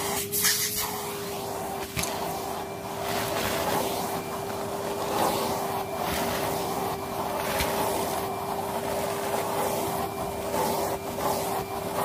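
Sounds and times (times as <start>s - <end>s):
vacuum cleaner motor whine: 0.0s - 12.0s
vacuum sucking debris off carpet: 0.0s - 12.0s.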